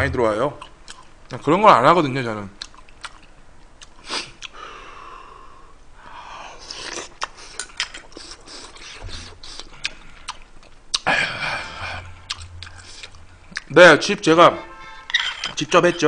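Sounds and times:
man chewing with mouth clicks: 0.6 - 1.2, 2.6 - 4.6, 6.6 - 11.1, 12.0 - 13.7
noisy breaths through nose: 4.0 - 10.3.

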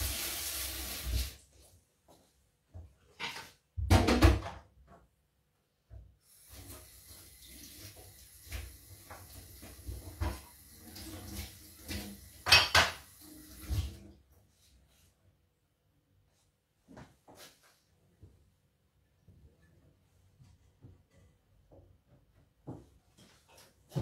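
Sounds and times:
tap water running into sink: 0.0 - 1.4, 6.3 - 14.0
things clattering in sink: 8.5 - 14.0.

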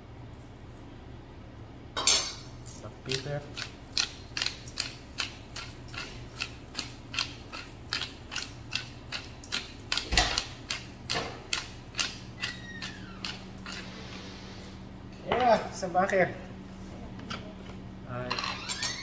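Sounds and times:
pepper mill grinding: 3.1 - 14.2.

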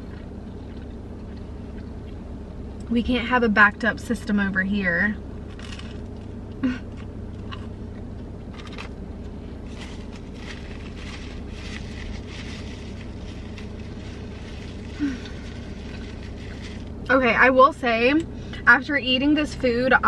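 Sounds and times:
person chewing food: 0.0 - 2.3
car cabin rumble: 0.0 - 20.0.

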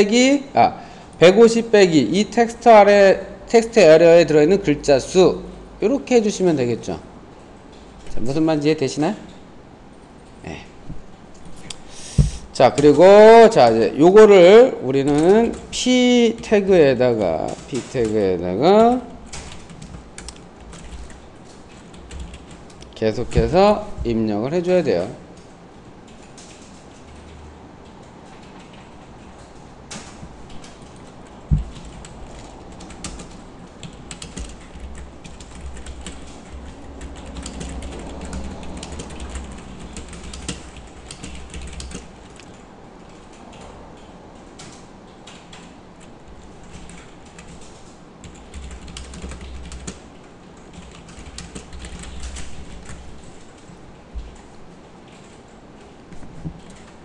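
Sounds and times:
sharp loud thump: 12.2 - 12.5.

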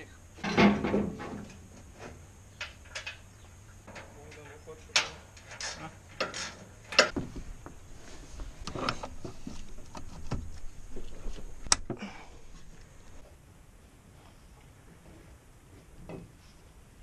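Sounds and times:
metallic clicks and knocks: 3.8 - 7.2.

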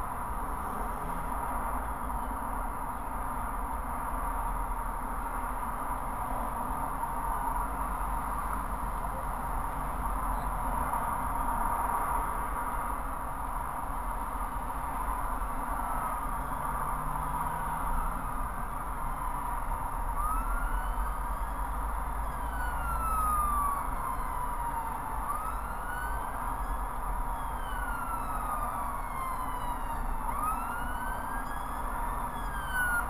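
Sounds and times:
motorway traffic noise: 0.0 - 33.0
emergency vehicle siren wailing: 15.0 - 33.0.

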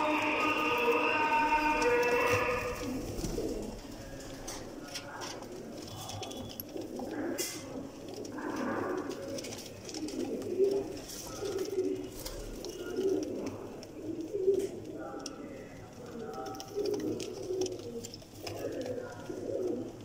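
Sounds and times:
pigeons cooing: 0.0 - 20.0.

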